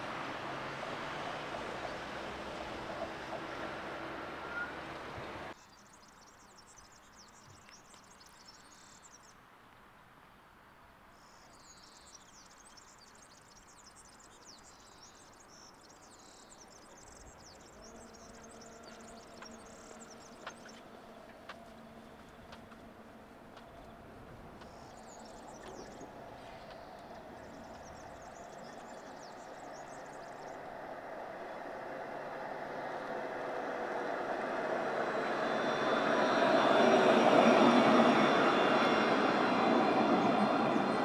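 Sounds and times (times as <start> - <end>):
faint tram hum: 0.0 - 5.6, 16.6 - 41.0
road vehicles passing: 0.0 - 5.6, 17.7 - 41.0.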